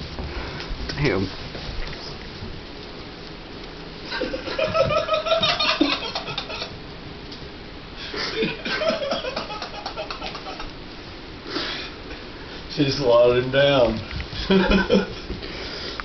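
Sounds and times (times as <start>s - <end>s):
person laughing: 4.1s - 6.8s, 8.1s - 10.7s, 14.4s - 15.4s.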